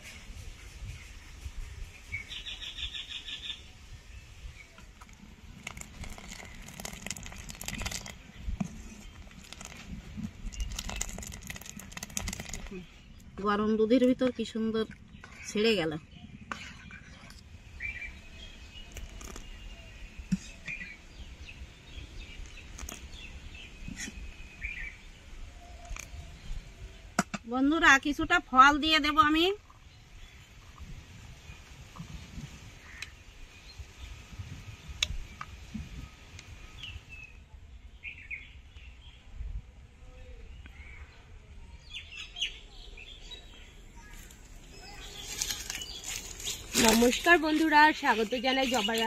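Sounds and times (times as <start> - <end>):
small birds chirping: 0.8 - 27.2, 40.1 - 49.0
pudding simmering and stirred: 4.8 - 13.6, 18.8 - 20.8, 22.2 - 24.4, 43.4 - 49.0.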